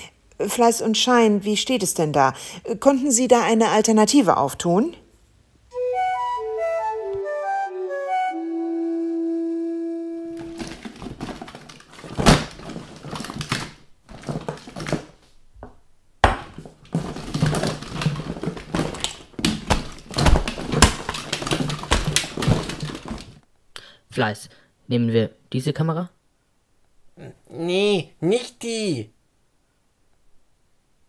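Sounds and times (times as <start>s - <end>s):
woodwind jingle: 5.7s - 10.4s
objects clattering and rustling: 10.3s - 23.4s.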